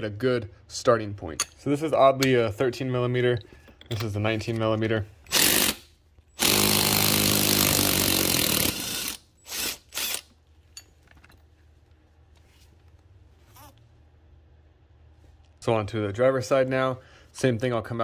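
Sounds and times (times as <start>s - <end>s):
cordless power tool whining: 6.4s - 10.2s.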